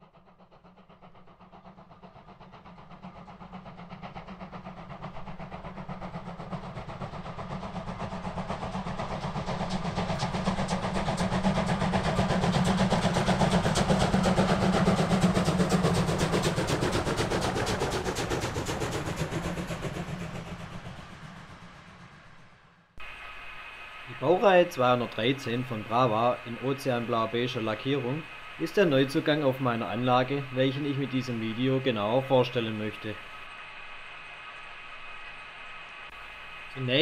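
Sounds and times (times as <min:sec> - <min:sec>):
diesel locomotive engine: 0:00.0 - 0:37.0
rapid ticking: 0:00.1 - 0:21.0.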